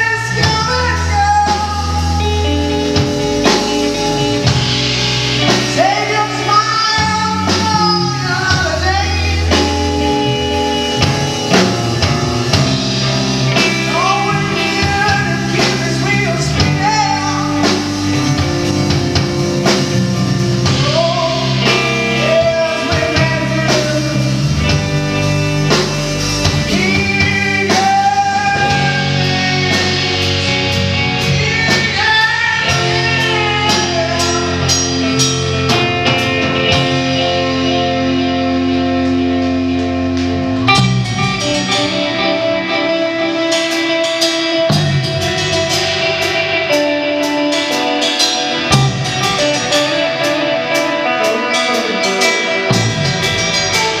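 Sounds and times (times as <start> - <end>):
man singing: 0.0 - 4.8, 5.4 - 11.5, 13.3 - 18.9, 20.6 - 36.9
drum kit: 0.0 - 54.0
electric bass: 0.0 - 54.0
electric guitar: 0.0 - 54.0.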